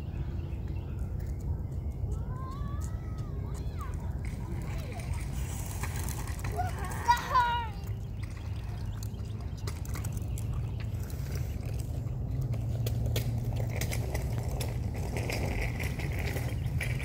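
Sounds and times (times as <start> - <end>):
low rumble of rolling wheels: 0.0 - 17.0
bike wheels clicking and scuffing: 0.6 - 17.0.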